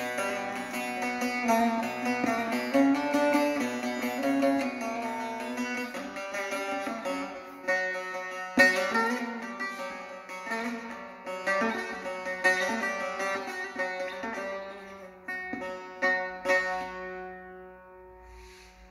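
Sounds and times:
long-necked lute playing: 0.0s - 18.9s.

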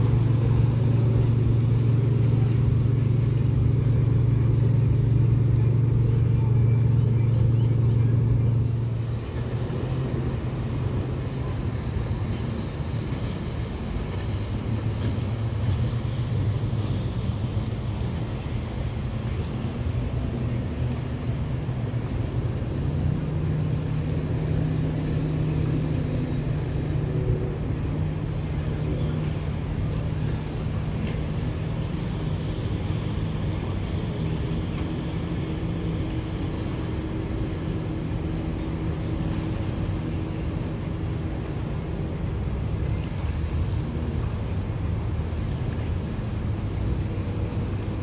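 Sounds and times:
boat engine drone: 0.0s - 48.0s
higher engine tone: 0.0s - 48.0s.

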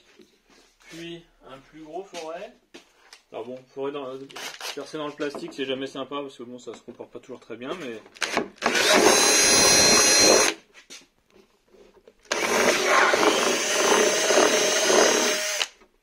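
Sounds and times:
electric drill boring plastic: 8.2s - 10.6s, 12.3s - 15.8s.

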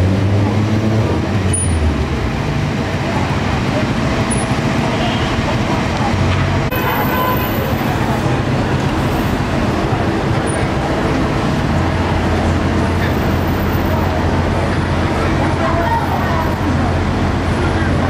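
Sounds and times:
city street traffic: 0.0s - 18.0s
people's voices: 0.3s - 18.0s.

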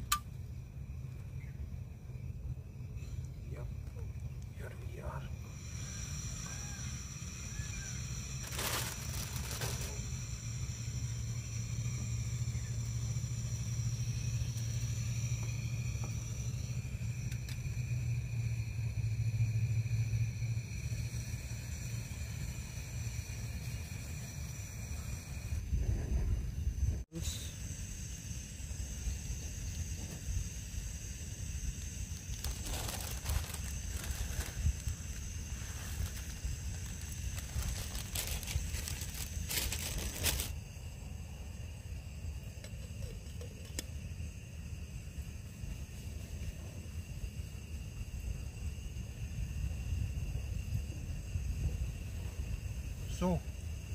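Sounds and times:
gas stove burning rumble: 0.0s - 53.9s
high insect drone: 0.0s - 53.9s
plastic packet crinkling: 8.4s - 10.0s, 32.3s - 35.2s, 35.8s - 40.5s.

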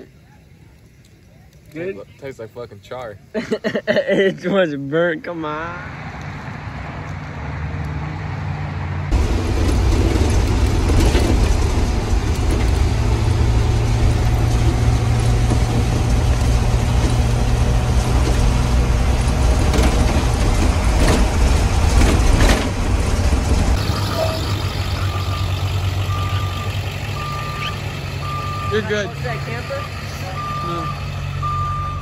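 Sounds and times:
bus engine drone: 5.3s - 32.0s
knocks and rattles: 9.1s - 24.1s
reversing alarm beeping: 23.8s - 32.0s.

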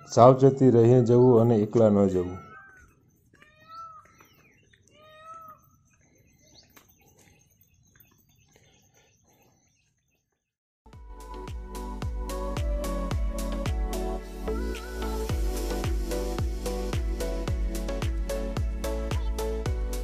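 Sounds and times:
high bird chirps: 0.9s - 10.5s
faint meow-like animal calls: 2.2s - 4.1s, 4.9s - 5.6s
music: 10.9s - 20.0s.

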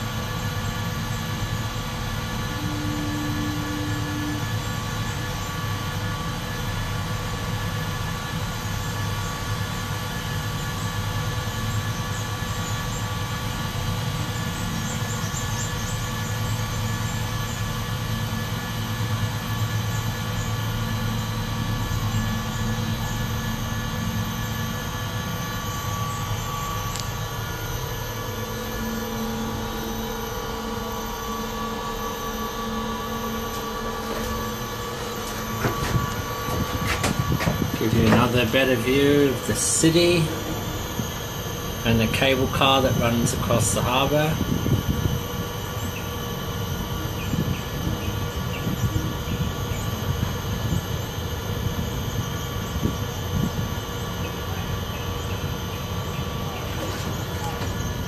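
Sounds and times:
cable car cabin hum: 0.0s - 58.0s
knocks: 35.3s - 38.3s.

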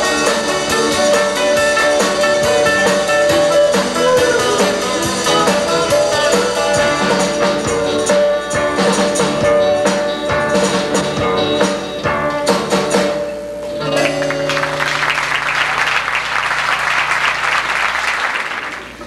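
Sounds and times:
acoustic band playing: 0.0s - 17.4s
audience applauding: 14.0s - 19.0s.

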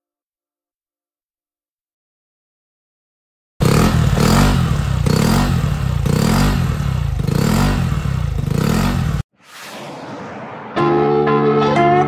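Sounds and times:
scooter engine revving: 3.6s - 9.2s.

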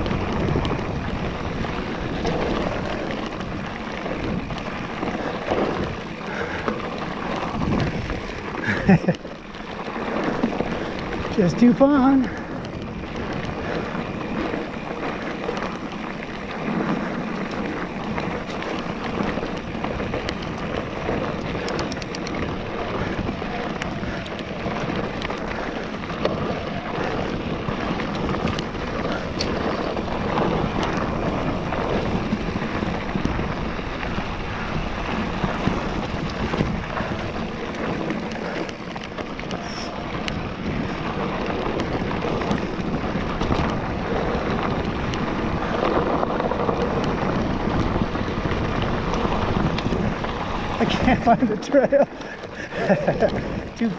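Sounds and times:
bike rattling and ticking: 0.0s - 53.9s
tyres on dirt trail: 0.0s - 53.9s
wind rushing over microphone: 0.0s - 53.9s.

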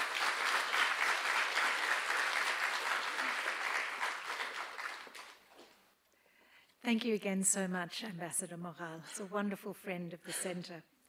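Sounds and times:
audience applauding: 0.0s - 5.5s.

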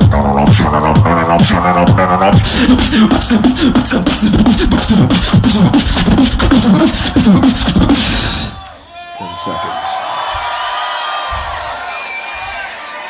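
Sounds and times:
beatboxed bass line: 0.0s - 8.6s.

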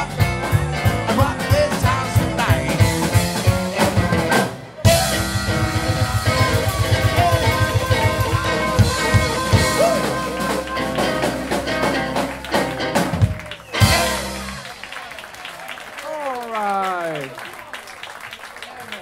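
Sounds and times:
electric guitar: 0.0s - 14.8s
bass guitar: 0.0s - 15.0s
drums: 0.0s - 16.2s
harmonica: 3.5s - 12.3s.

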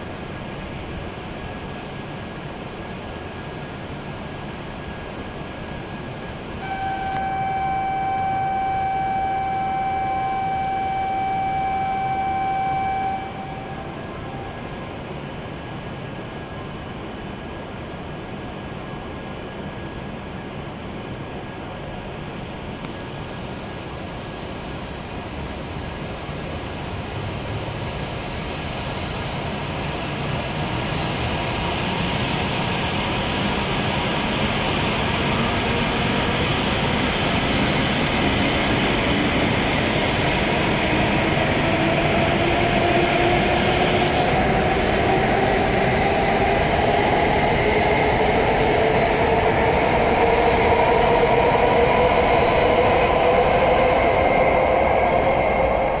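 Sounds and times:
train rolling noise: 0.0s - 56.0s
train traction motor whine: 6.5s - 17.2s, 24.9s - 56.0s.

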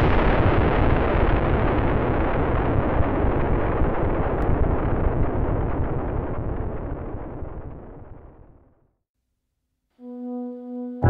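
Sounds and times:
explosion low rumble: 0.0s - 8.9s.

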